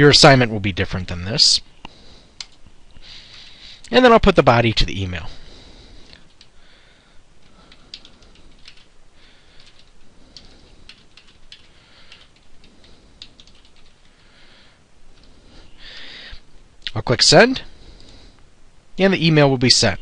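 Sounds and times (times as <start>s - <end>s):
keyboard typing clicks: 7.4s - 8.9s, 9.6s - 14.1s.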